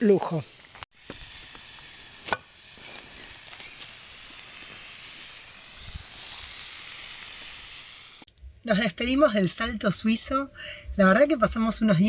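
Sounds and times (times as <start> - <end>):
vegetables sizzling in a pan: 0.0 - 8.3.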